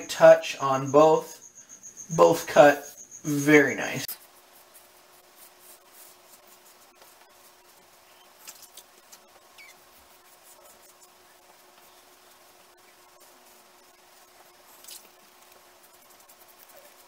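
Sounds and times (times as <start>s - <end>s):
razor scraping stubble: 3.4s - 12.0s.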